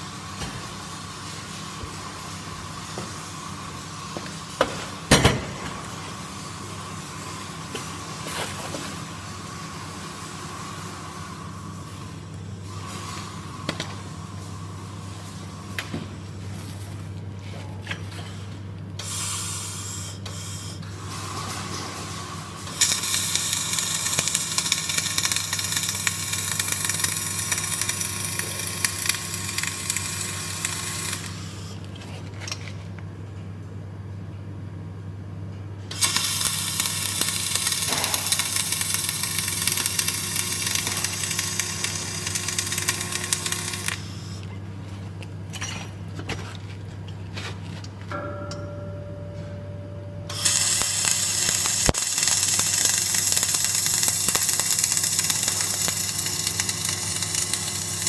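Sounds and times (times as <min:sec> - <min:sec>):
steady low hum: 0:00.0 - 0:58.0
welding arc crackling: 0:22.7 - 0:31.6, 0:36.0 - 0:44.4, 0:50.3 - 0:58.0.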